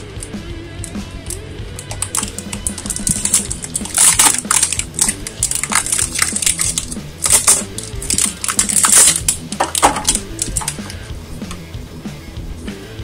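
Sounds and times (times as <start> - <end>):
plastic shrink-wrap crinkling: 1.8 - 10.9.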